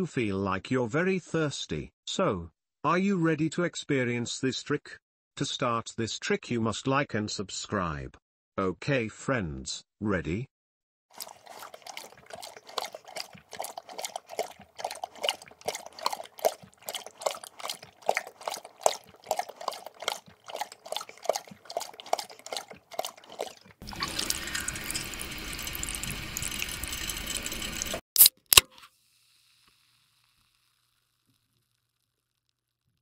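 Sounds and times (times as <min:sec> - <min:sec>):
dog slurping water: 0:11.2 - 0:28.0
water stream hissing: 0:23.8 - 0:28.0.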